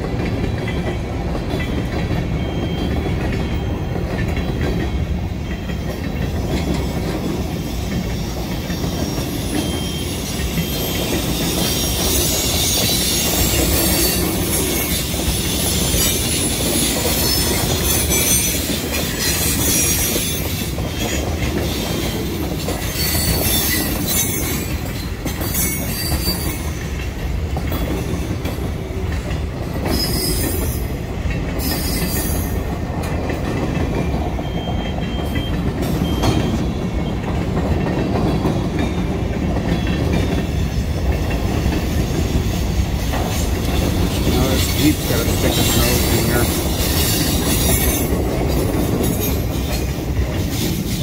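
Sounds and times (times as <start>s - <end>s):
train wheels rumbling on rails: 0.0s - 51.0s
high-pitched wheel squeals: 7.6s - 21.8s, 22.8s - 26.8s, 29.9s - 30.9s, 31.6s - 32.6s.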